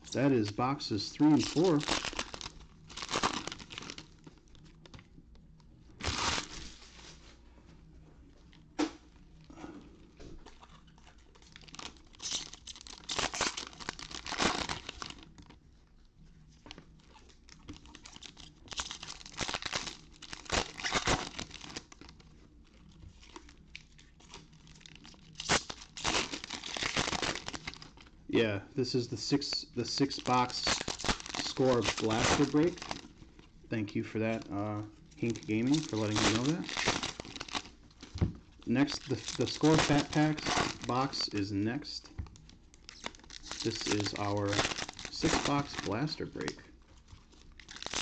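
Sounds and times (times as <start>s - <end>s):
card wrappers tearing: 0.1s - 4.9s, 6.0s - 6.8s, 10.5s - 15.4s, 16.9s - 22.2s, 22.8s - 28.1s, 28.9s - 33.2s, 34.2s - 48.0s.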